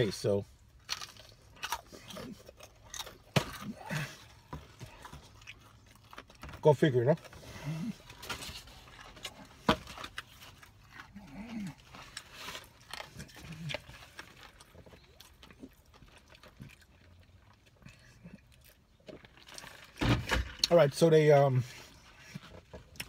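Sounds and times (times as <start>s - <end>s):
chewing: 0.7s - 6.5s, 7.2s - 20.0s, 21.9s - 23.0s.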